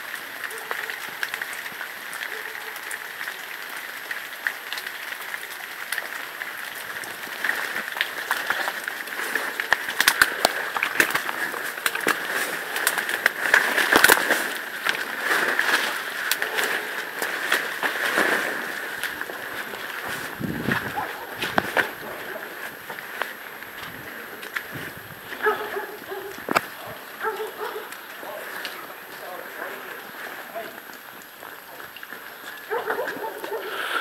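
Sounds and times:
twigs crackling and snapping: 0.0 - 33.6
footsteps through undergrowth: 6.6 - 34.0.

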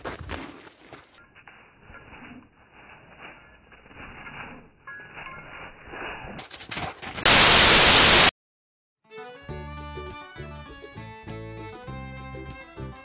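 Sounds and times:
burst of white noise: 7.3 - 8.3
stringed instrument music: 9.0 - 13.0.

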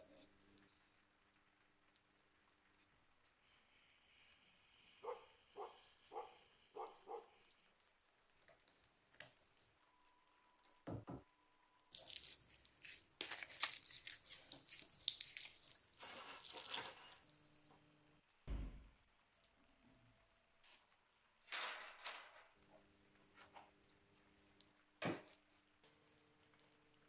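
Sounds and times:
plastic insulation tearing: 11.9 - 17.0.

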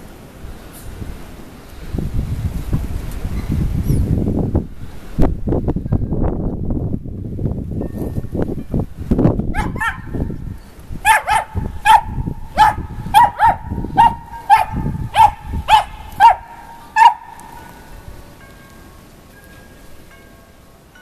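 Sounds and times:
puppy yapping: 9.6 - 10.2, 11.0 - 17.4.

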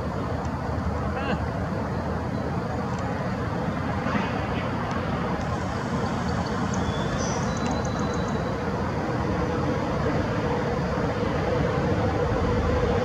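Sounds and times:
low outdoor rumble: 0.0 - 13.0
faint high chirps: 6.0 - 8.5.

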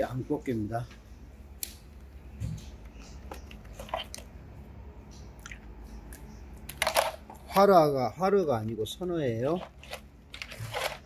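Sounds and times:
clicks and crunches of shell and ice: 6.1 - 7.4.

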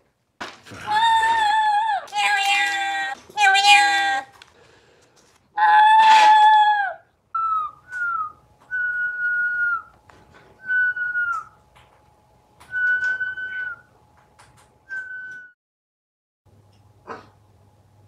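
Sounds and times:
parrot whistled calls: 7.4 - 9.9, 10.6 - 11.6, 12.7 - 13.9.

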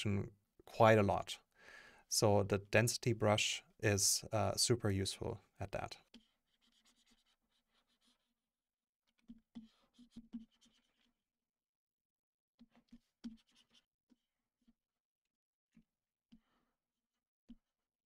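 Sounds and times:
stylus tapping and scratching tablet: 6.0 - 8.3, 9.1 - 11.1, 12.6 - 14.2.

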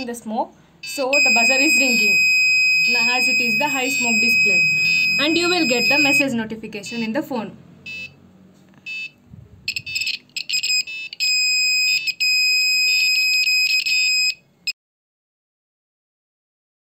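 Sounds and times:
smoke alarm buzzer tone: 0.8 - 7.2, 7.8 - 8.2, 8.9 - 14.8.

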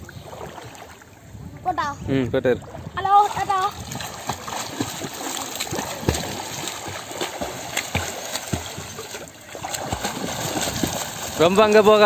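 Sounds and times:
floodwater splashing and sloshing: 0.0 - 12.0
people splashing through water: 2.6 - 12.0.

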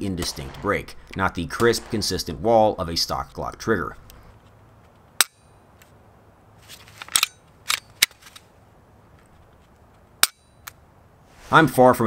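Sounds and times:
small clicks of gun handling: 6.7 - 8.5.

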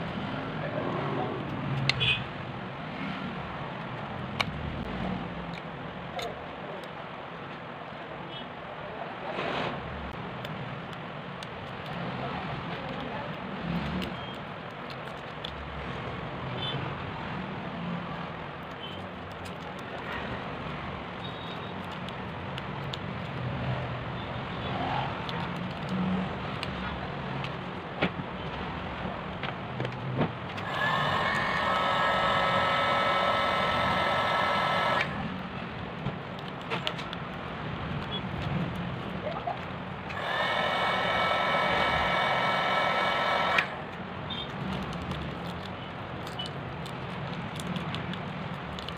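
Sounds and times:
background street noise: 0.0 - 48.9
loud steady multi-tone whine: 30.6 - 35.6, 40.1 - 44.5.

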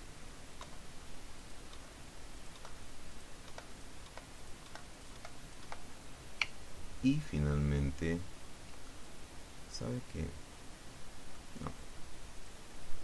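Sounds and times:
faint steady hiss: 0.0 - 13.0
mouse and keyboard clicks: 2.5 - 2.8, 3.4 - 6.6.

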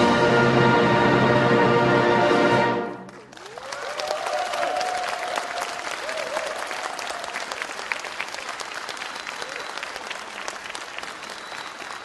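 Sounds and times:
audience applauding: 3.0 - 12.0
voices cheering: 3.4 - 12.0.

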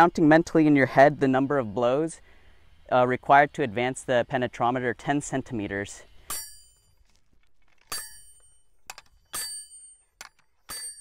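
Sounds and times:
hammer clanging on metal anvil: 6.3 - 6.8, 7.9 - 8.5, 9.2 - 10.0, 10.7 - 11.0.

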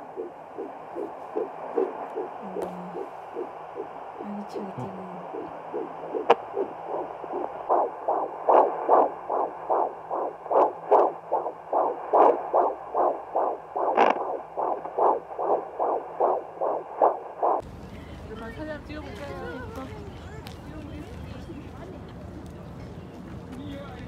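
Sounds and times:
fetal heartbeat through doppler: 0.0 - 17.6.

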